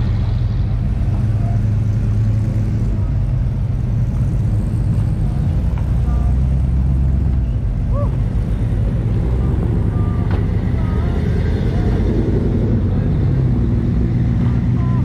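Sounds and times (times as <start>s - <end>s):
car engines rumbling: 0.0s - 15.0s.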